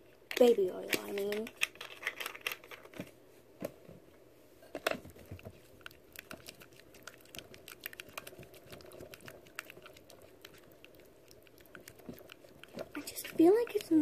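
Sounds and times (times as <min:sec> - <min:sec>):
spatula stirring sticky mix: 0:05.1 - 0:14.0.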